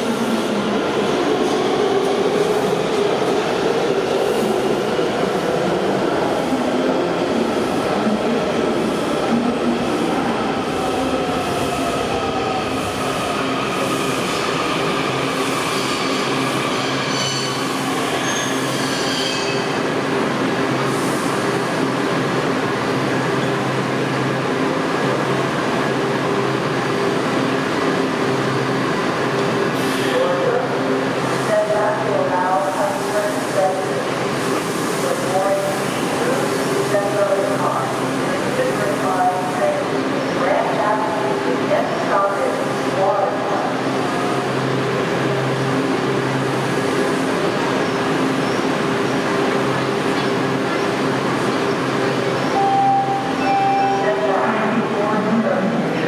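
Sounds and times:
subway train moving: 0:00.0 - 0:56.0
train wheel squeal: 0:15.7 - 0:19.7.

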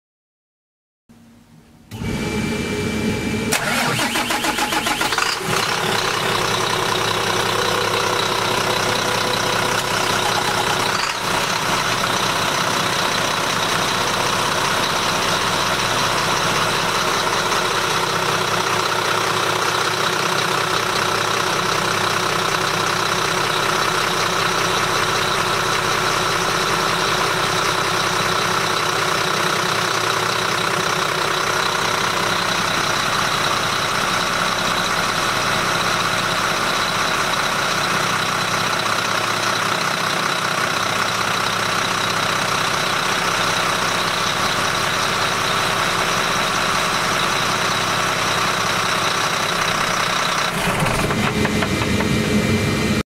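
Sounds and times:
marine diesel engine idling: 0:03.5 - 0:53.0.

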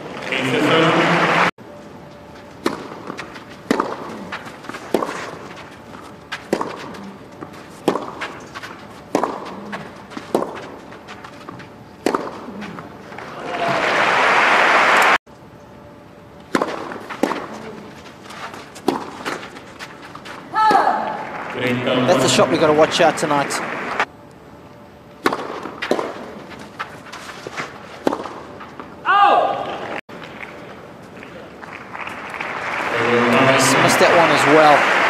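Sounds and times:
crowd noise: 0:00.0 - 0:01.5, 0:13.1 - 0:15.2, 0:20.5 - 0:24.1, 0:31.2 - 0:35.0
crowd applause: 0:00.2 - 0:01.5, 0:13.1 - 0:15.2, 0:21.0 - 0:24.1, 0:31.6 - 0:35.0
tennis racket hitting ball: 0:02.6 - 0:12.8, 0:16.5 - 0:21.2, 0:25.2 - 0:28.9.

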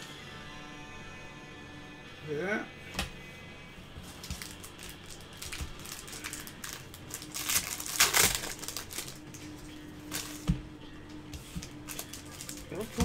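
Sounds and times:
plastic wrapper crinkling: 0:04.1 - 0:10.5, 0:11.6 - 0:13.0.

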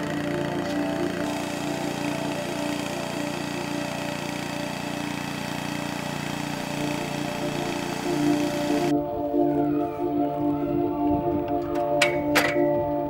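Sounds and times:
small gasoline engine running: 0:00.0 - 0:09.0.

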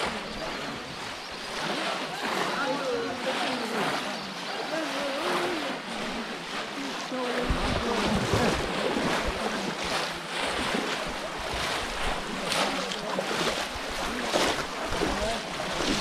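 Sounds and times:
muddy water splashing: 0:00.0 - 0:16.0
wind buffeting microphone: 0:07.4 - 0:10.0.

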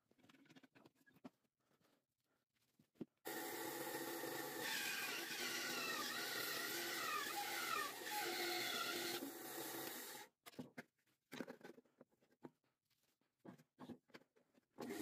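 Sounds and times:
band saw cutting wood: 0:03.3 - 0:10.3.

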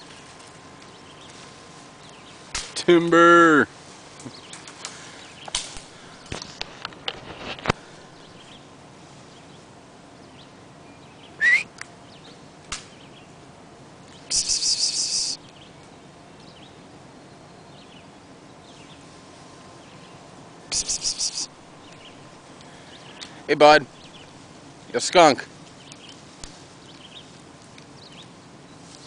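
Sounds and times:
bird chirping and trilling: 0:19.8 - 0:24.4.

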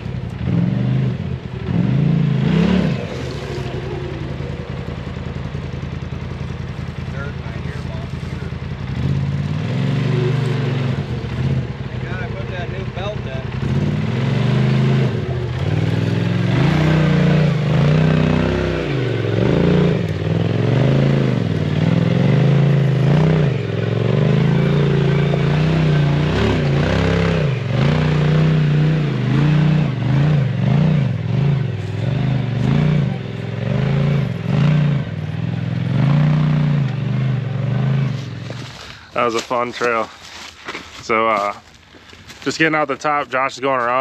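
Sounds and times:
engine revving: 0:00.0 - 0:40.5
knocks and scrapes on rocks: 0:38.2 - 0:44.0.

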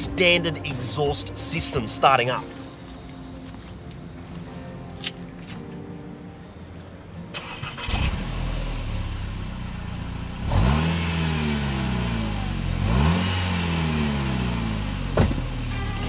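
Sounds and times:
car engine starting and idling: 0:07.2 - 0:16.0
car engine revving: 0:07.3 - 0:16.0.

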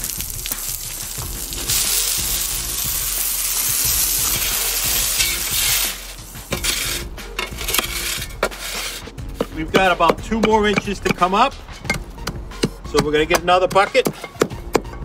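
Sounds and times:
water spray hissing: 0:00.0 - 0:07.1
shovel scraping wet asphalt: 0:03.6 - 0:11.3.

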